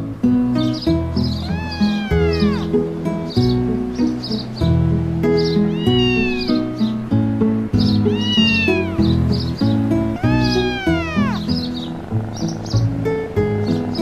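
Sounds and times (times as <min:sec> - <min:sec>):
background music: 0:00.0 - 0:14.0
cat meowing: 0:01.3 - 0:02.8, 0:05.6 - 0:06.8, 0:08.0 - 0:09.4, 0:10.1 - 0:11.6.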